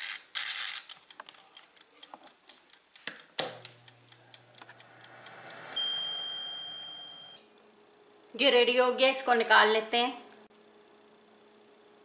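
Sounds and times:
oven dial ticking: 0.8 - 7.4
oven low hum: 1.4 - 12.0
oven switch click: 3.0 - 4.9.

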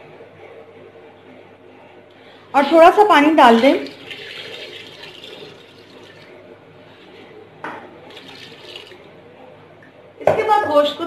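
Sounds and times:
water pouring into a pot: 3.5 - 6.4, 8.1 - 9.1.

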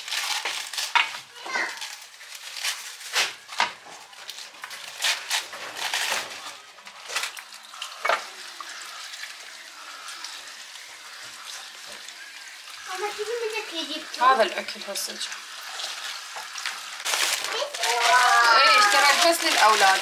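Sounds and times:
lettuce leaves tearing and crunching: 0.0 - 8.0, 15.7 - 20.0
faucet sprayer water hissing: 7.6 - 17.1.

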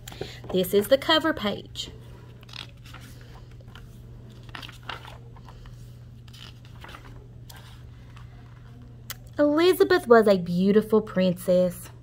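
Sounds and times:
book pages turning: 2.2 - 9.2.

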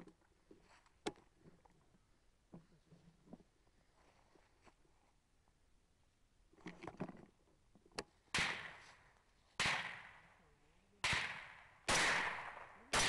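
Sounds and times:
suppressed rifle shots: 8.3 - 9.0, 9.6 - 10.3, 11.0 - 13.0.

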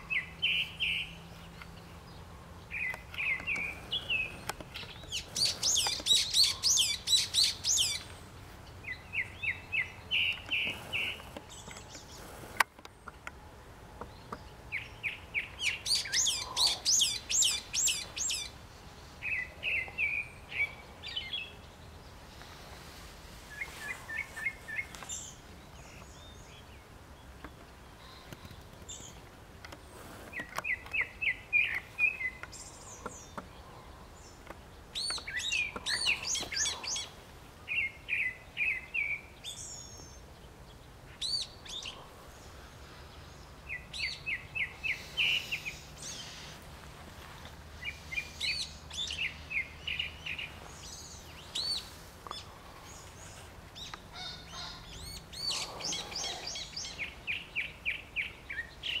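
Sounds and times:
bulbul calling: 2.7 - 8.2, 14.0 - 18.6, 30.3 - 40.2, 43.7 - 46.7, 47.8 - 59.0.

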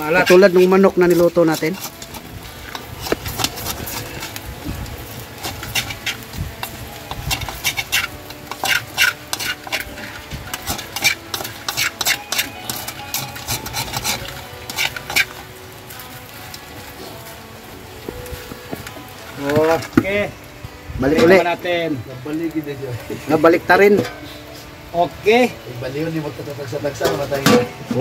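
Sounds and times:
metal spoon scraping wok: 0.0 - 16.0.

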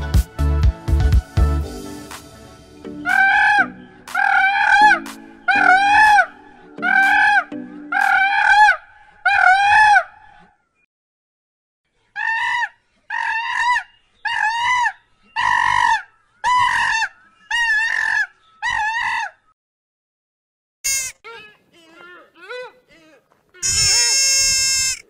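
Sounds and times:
loud rising falling animal call: 3.0 - 10.2, 12.2 - 19.4, 23.6 - 25.0.

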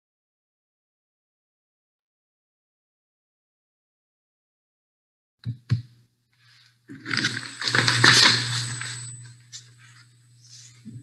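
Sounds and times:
low electrical hum: 5.4 - 11.0
rustling: 6.9 - 10.8.

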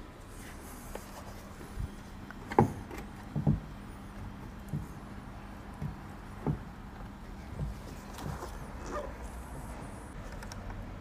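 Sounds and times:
faint steady hum: 0.0 - 11.0
wing mirror knocking against car door: 5.8 - 6.8.

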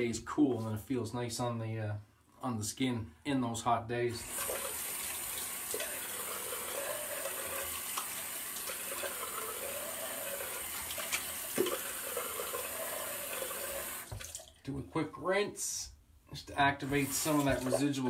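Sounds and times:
tap water running into sink: 4.2 - 14.6, 16.8 - 18.0.

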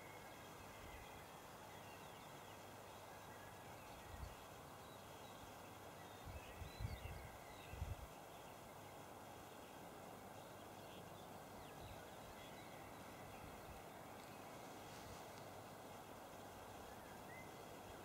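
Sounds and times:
steady hiss: 0.0 - 18.0
faint bird chirps: 10.4 - 18.0.

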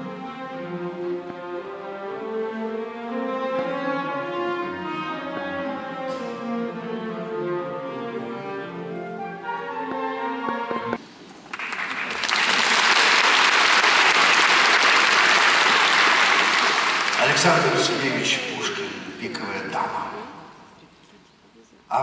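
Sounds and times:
orchestra strings playing: 0.0 - 11.0, 14.0 - 20.3
audience applause: 11.4 - 18.9.

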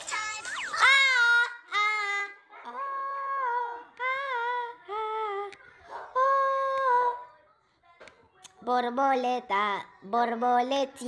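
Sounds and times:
woman singing: 0.1 - 7.2.

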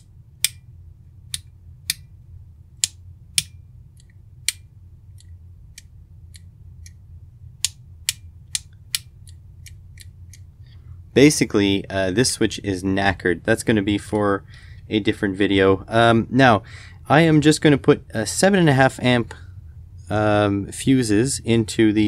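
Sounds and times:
rocker switches clicking: 0.0 - 0.6, 1.3 - 2.1, 2.8 - 7.0, 7.6 - 10.5.

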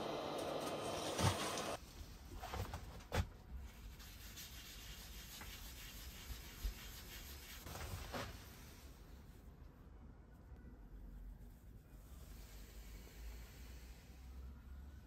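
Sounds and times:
paper towel rubbing wood: 3.9 - 7.7.

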